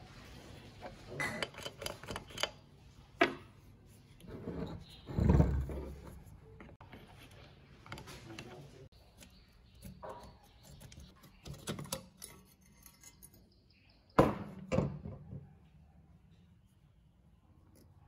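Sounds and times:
metal clicks and scrapes: 0:00.7 - 0:02.7, 0:04.2 - 0:13.6.

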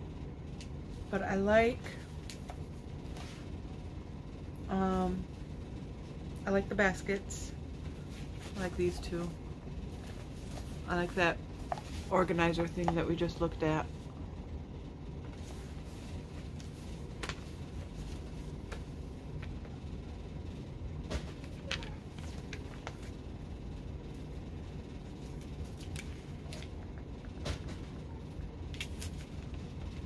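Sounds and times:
low room hum: 0:00.0 - 0:30.0
paper pages rustling: 0:21.4 - 0:23.2, 0:25.2 - 0:26.8.

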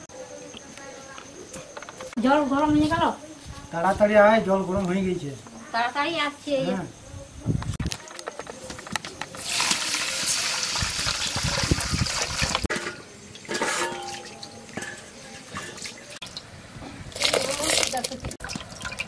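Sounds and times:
hot water poured over rice: 0:09.4 - 0:12.6, 0:17.1 - 0:19.0
metal pots clinking: 0:12.6 - 0:19.0.

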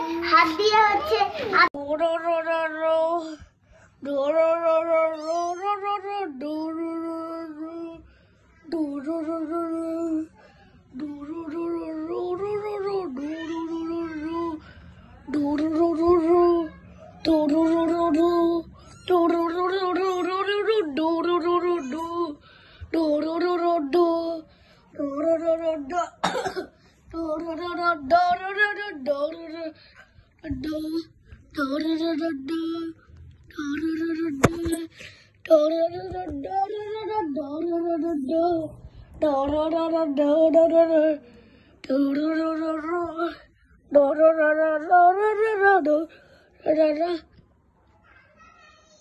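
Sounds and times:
high voice singing: 0:04.0 - 0:08.0, 0:30.4 - 0:47.3.

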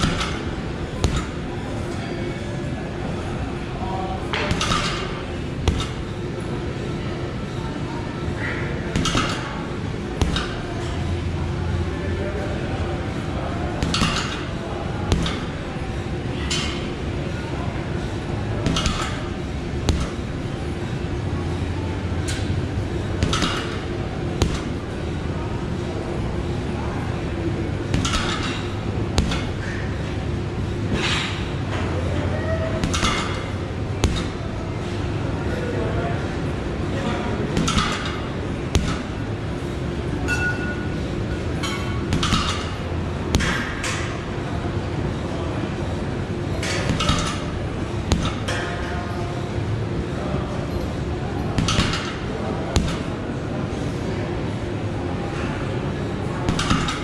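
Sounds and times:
steady low hum: 0:00.0 - 0:57.0
gloves punching heavy bag: 0:10.2 - 0:10.6, 0:19.9 - 0:20.2, 0:29.2 - 0:29.6, 0:34.0 - 0:34.4, 0:48.1 - 0:48.4.

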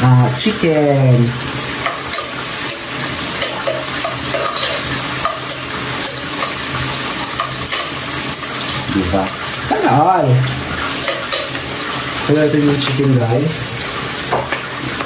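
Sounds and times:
chicken frying in hot oil: 0:00.0 - 0:15.0
stirring clicks and scrapes: 0:01.8 - 0:08.8.

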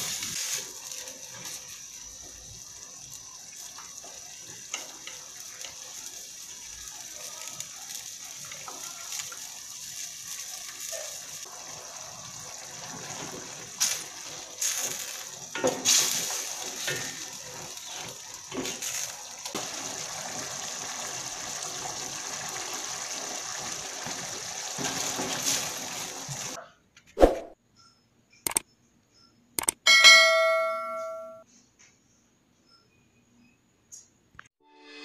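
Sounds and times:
sauce bubbling in pot: 0:11.4 - 0:26.5.

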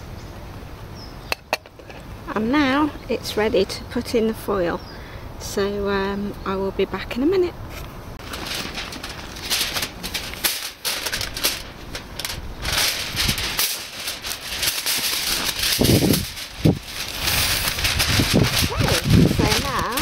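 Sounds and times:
aluminium foil crinkling: 0:08.2 - 0:20.0.

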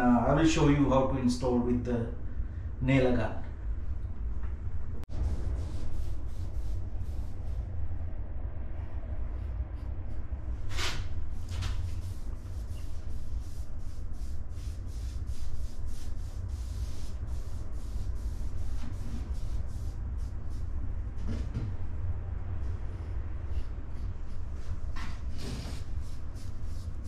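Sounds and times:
low rumble: 0:00.0 - 0:27.0
paintbrush strokes on wood: 0:05.1 - 0:07.8, 0:09.2 - 0:20.8, 0:23.0 - 0:27.0.

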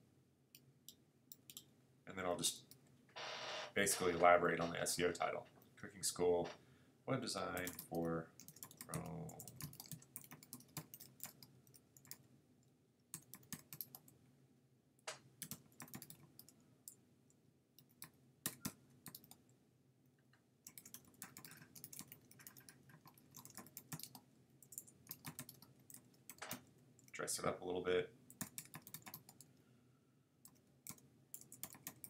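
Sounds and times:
typing on a computer keyboard: 0:07.6 - 0:12.2, 0:13.1 - 0:14.2, 0:15.4 - 0:17.0, 0:17.8 - 0:19.4, 0:20.7 - 0:26.7, 0:28.3 - 0:29.5, 0:30.4 - 0:32.0.

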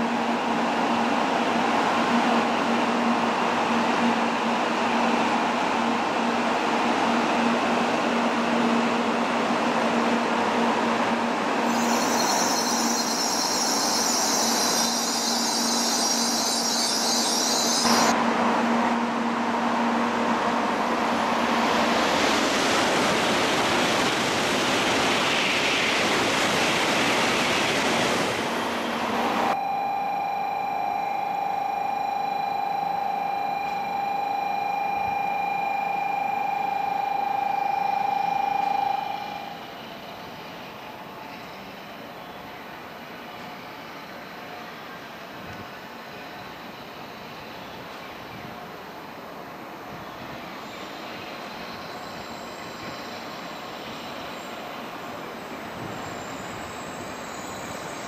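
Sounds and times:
high-speed train passing: 0:00.0 - 0:29.6, 0:31.1 - 0:58.0
steady high-pitched tone: 0:11.6 - 0:18.2, 0:29.5 - 0:48.3.

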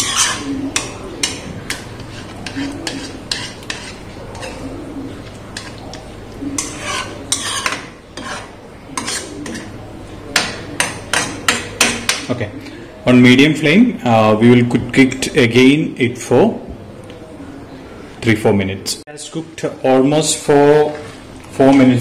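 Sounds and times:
metal spatula scraping a pan: 0:00.0 - 0:04.8, 0:05.5 - 0:09.8.

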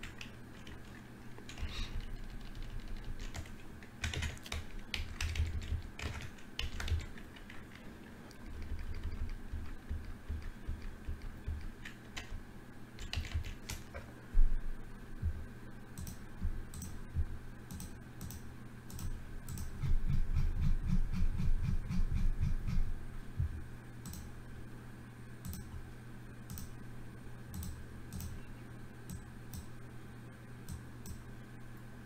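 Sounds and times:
keyboard and mouse clicks: 0:00.0 - 0:12.4, 0:13.0 - 0:14.1, 0:16.0 - 0:17.0, 0:17.7 - 0:22.8, 0:24.0 - 0:24.3, 0:25.4 - 0:25.7, 0:26.5 - 0:26.8, 0:27.5 - 0:28.4, 0:29.1 - 0:29.7, 0:30.7 - 0:31.2
faint steady hum: 0:00.0 - 0:32.0.

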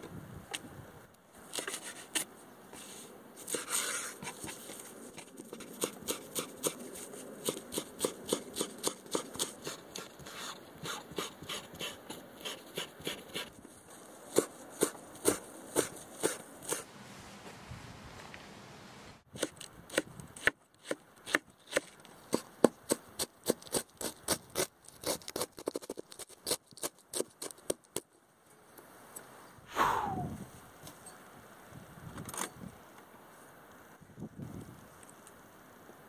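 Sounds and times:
leaves rustling and scraping: 0:01.2 - 0:07.8, 0:12.3 - 0:19.2.

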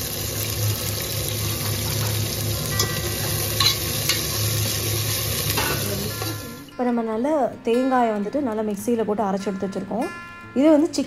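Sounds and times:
onions sizzling in oil: 0:00.0 - 0:06.7
spatula clinking against pot: 0:02.7 - 0:04.3.

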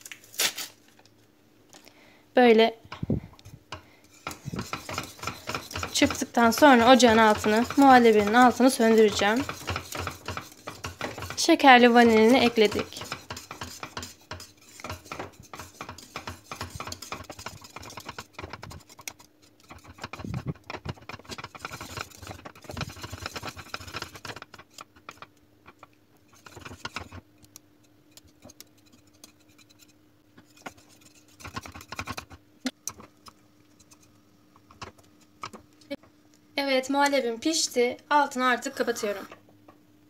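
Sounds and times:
faint steady hum: 0:00.0 - 0:40.0
whisk scraping a metal pot: 0:03.7 - 0:32.4, 0:33.7 - 0:34.1.

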